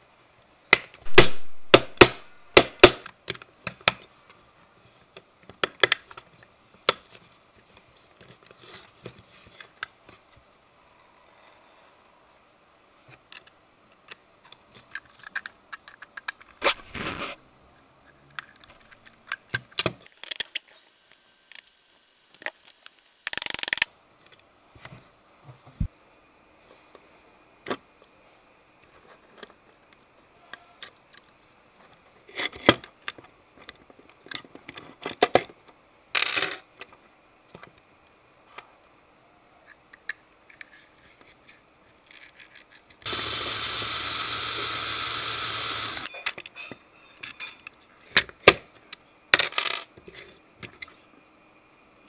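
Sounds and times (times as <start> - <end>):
small parts clicking and clinking: 18.2 - 23.9, 42.0 - 43.2
parts rattling: 20.1 - 23.9.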